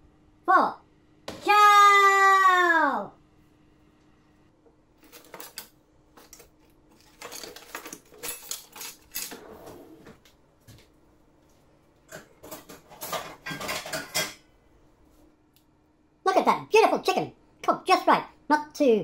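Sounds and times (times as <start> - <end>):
metal oven tray clattering: 12.4 - 14.4.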